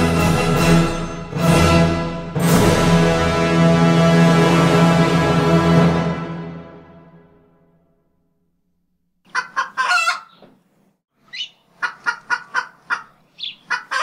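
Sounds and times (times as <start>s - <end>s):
chicken clucking: 9.3s - 10.6s, 11.3s - 14.0s.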